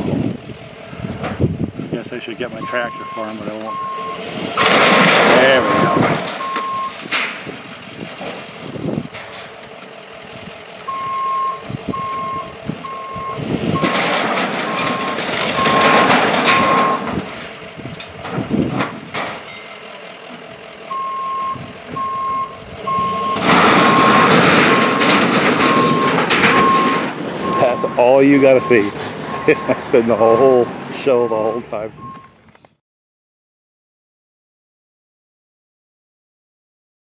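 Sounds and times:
rumbling machinery: 0.0s - 32.8s
backup alarm beeping: 2.5s - 4.3s, 5.6s - 7.0s, 10.9s - 14.0s, 14.7s - 17.1s, 20.9s - 32.3s.

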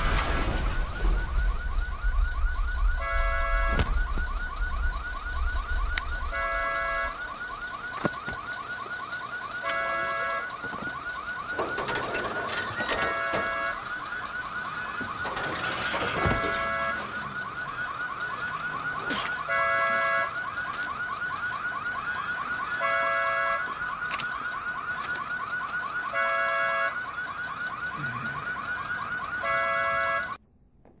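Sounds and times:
car alarm warbling siren: 0.0s - 30.4s
car horn honks: 9.6s - 10.5s, 19.5s - 20.3s, 26.2s - 27.0s, 29.4s - 30.4s.

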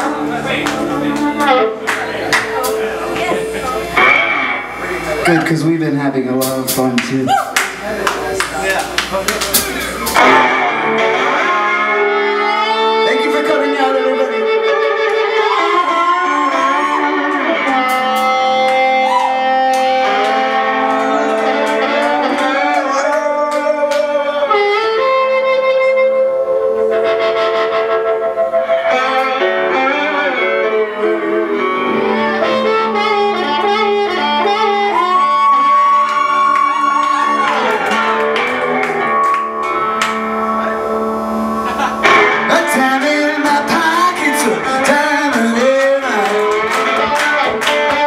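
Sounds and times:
electric guitar backing: 0.0s - 48.0s
harmonica held notes: 9.8s - 23.5s, 24.1s - 43.0s.

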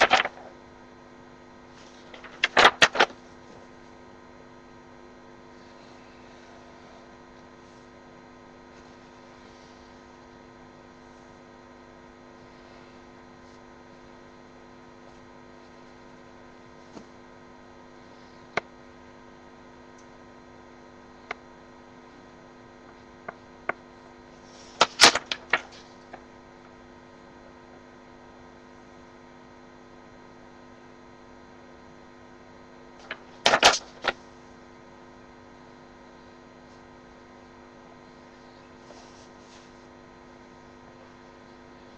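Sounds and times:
paper handling: 0.0s - 0.6s, 1.8s - 3.8s, 24.5s - 26.3s, 33.0s - 34.3s
electrical mains hum: 0.0s - 41.9s.

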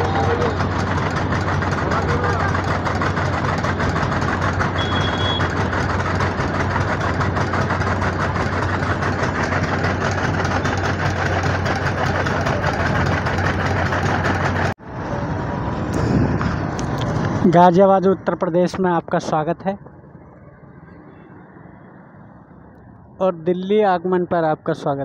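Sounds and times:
heavy machinery engine hum: 0.0s - 18.4s
road traffic: 0.0s - 25.0s
short high beep: 4.8s - 5.5s.

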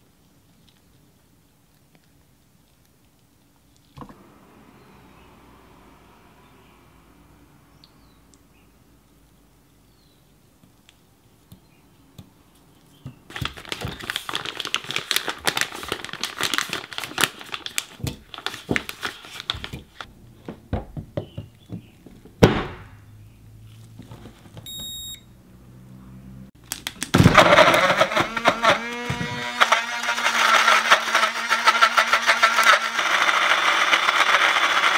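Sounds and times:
short high beep: 24.7s - 25.3s.

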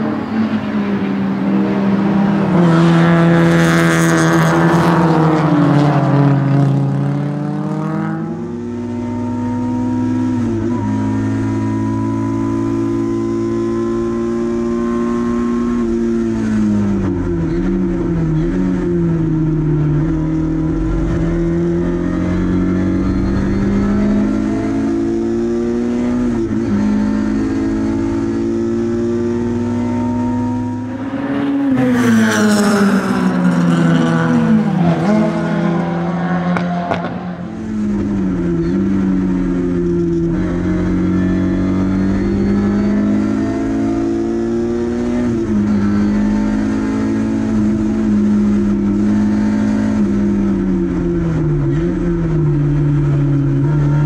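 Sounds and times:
race car engine at high revs: 0.0s - 54.0s.

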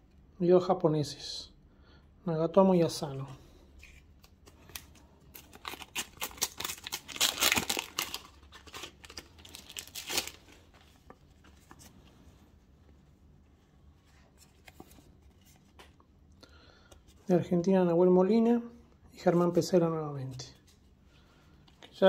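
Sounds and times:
paper wrapper tearing and crinkling: 4.2s - 10.9s.

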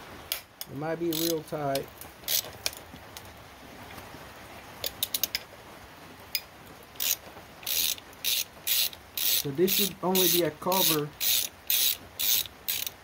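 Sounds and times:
hand ratchet clicking: 1.1s - 1.4s, 2.2s - 2.8s, 7.0s - 13.0s.

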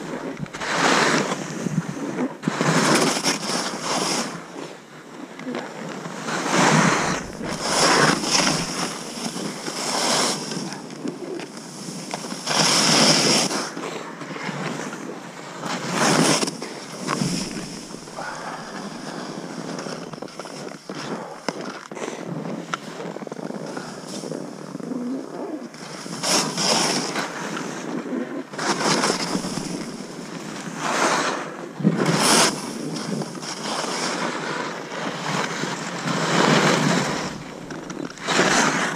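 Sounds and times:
skis whooshing through snow: 0.0s - 4.7s, 5.9s - 21.2s, 25.4s - 38.9s
wind on microphone: 6.1s - 13.5s, 15.8s - 20.7s, 23.6s - 33.4s, 35.2s - 38.9s.

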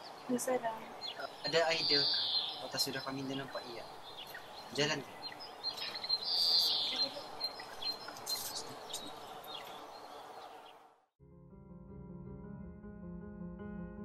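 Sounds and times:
birds chirping: 0.0s - 11.1s
soft music with held notes: 11.4s - 14.0s.

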